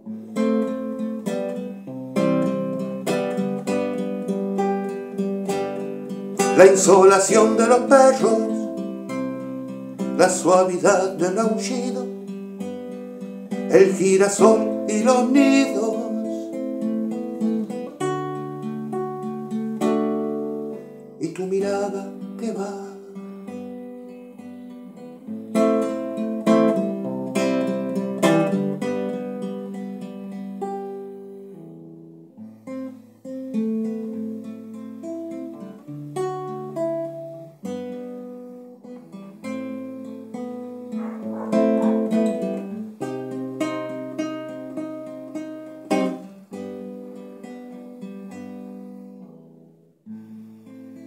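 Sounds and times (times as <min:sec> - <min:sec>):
classical guitar playing: 0:00.0 - 0:51.0.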